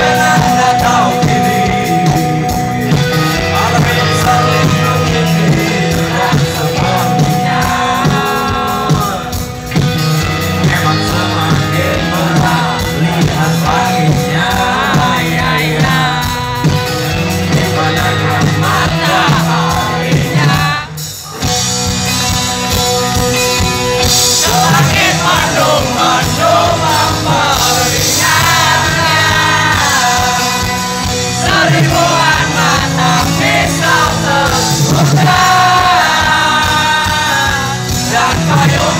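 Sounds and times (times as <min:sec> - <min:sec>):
lead singer singing: 0:00.0 - 0:38.9
live rock band playing: 0:00.0 - 0:38.9.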